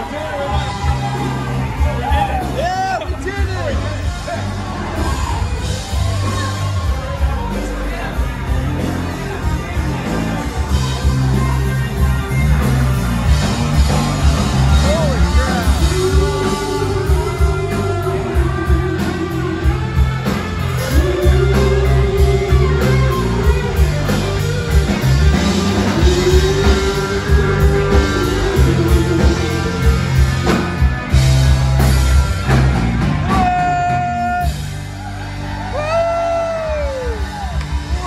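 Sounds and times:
rock band playing: 0.0 - 38.0
lead singer singing: 15.2 - 19.6, 25.9 - 30.3.

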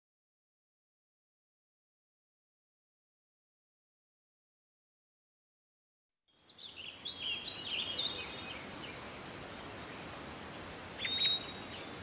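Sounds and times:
outdoor background hiss: 6.3 - 12.0
small birds chirping: 6.3 - 12.0.

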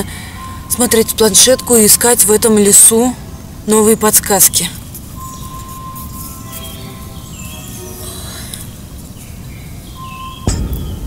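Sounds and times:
eerie background music: 5.2 - 11.0
deep boom: 10.4 - 11.0
low rumble: 10.4 - 11.0.

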